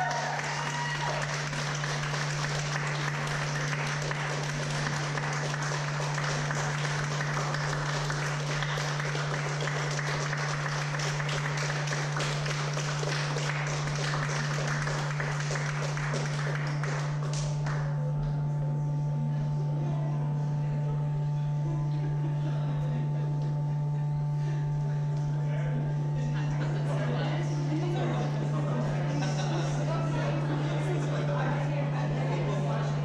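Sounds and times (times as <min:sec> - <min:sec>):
audience applauding: 0:00.0 - 0:18.0
low hum: 0:00.0 - 0:33.0.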